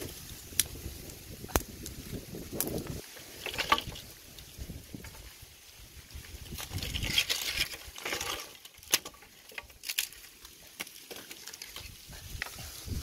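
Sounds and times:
pebbles clicking and shifting: 0:02.6 - 0:05.3, 0:06.2 - 0:12.6
rustling: 0:02.8 - 0:13.0.

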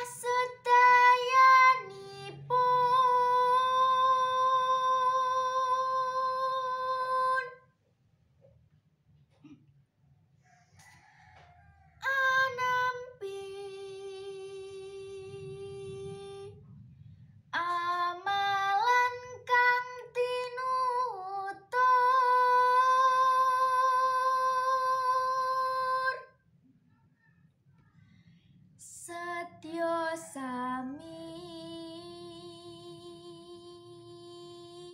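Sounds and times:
girl singing unaccompanied: 0:00.0 - 0:07.7, 0:12.0 - 0:16.7, 0:17.6 - 0:26.4, 0:28.8 - 0:34.9.

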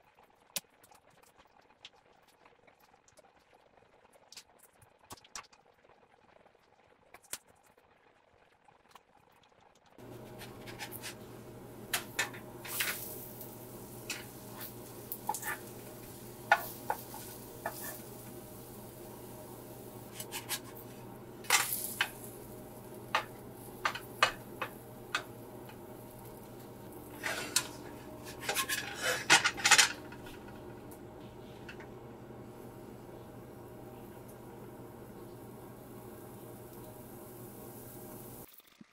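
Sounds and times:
spatula scraping frying pan: 0:10.0 - 0:18.7, 0:19.9 - 0:22.4, 0:23.1 - 0:26.2, 0:27.0 - 0:30.7.

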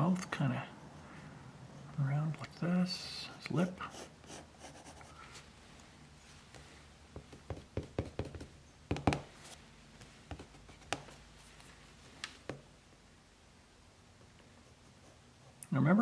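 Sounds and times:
pencil scratching on paper: 0:03.3 - 0:05.2.

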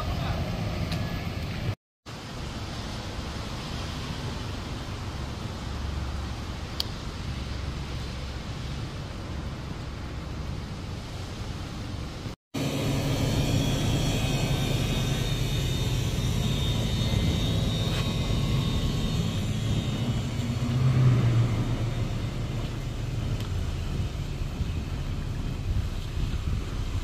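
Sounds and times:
vehicle engine rumble: 0:00.0 - 0:27.0
faint high whine: 0:12.6 - 0:27.0.

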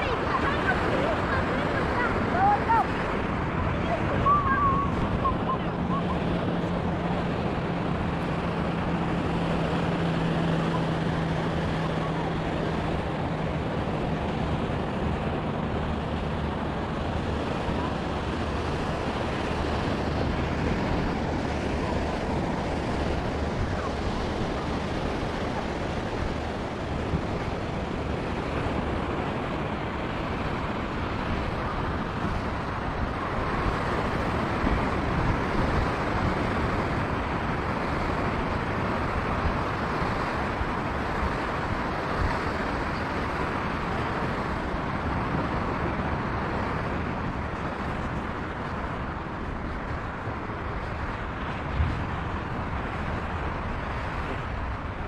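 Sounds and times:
ocean surf on sandy beach: 0:00.0 - 0:55.0
wind noise on microphone: 0:00.0 - 0:55.0.

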